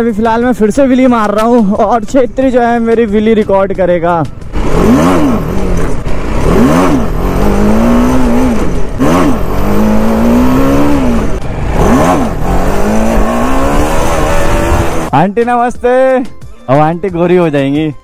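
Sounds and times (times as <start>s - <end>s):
motorcycle engine revving: 4.2s - 15.2s.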